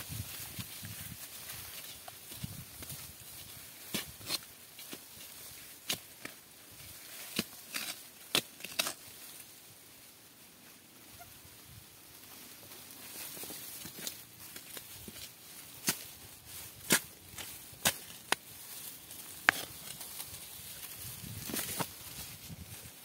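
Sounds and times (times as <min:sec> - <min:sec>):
twigs and stems snapping: 0:07.2 - 0:09.0, 0:16.8 - 0:22.0.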